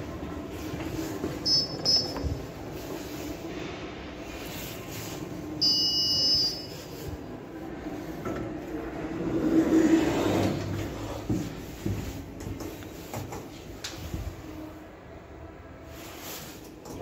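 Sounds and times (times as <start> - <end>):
low hum from lift: 0.0 - 13.1
lift doors and machinery rumble: 0.0 - 17.0.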